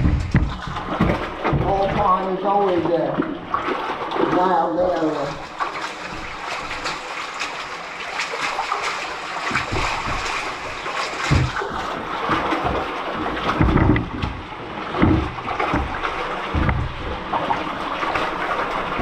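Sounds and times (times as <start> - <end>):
heavy low thuds: 0.0 - 2.2
feet splashing through water: 0.0 - 19.0
kayak towed through pipe: 0.0 - 19.0.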